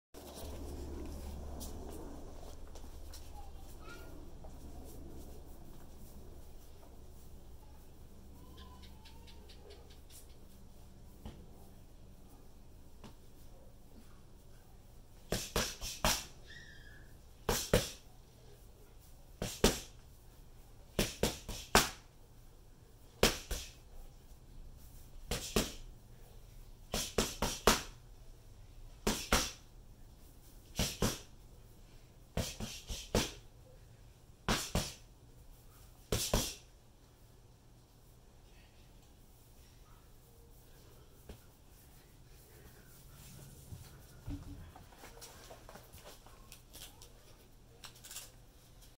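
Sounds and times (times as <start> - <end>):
gloves smacking focus mitts: 15.2 - 16.4, 21.0 - 22.1, 25.2 - 25.9, 26.9 - 28.0, 29.0 - 29.7, 30.7 - 31.4, 32.4 - 33.4, 34.4 - 35.1.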